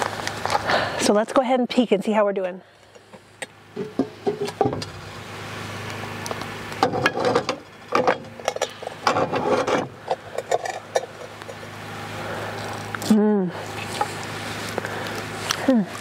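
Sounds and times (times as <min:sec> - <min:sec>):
steady low hum: 0:00.0 - 0:16.0
metal lid clinks and scrapes: 0:06.9 - 0:11.6.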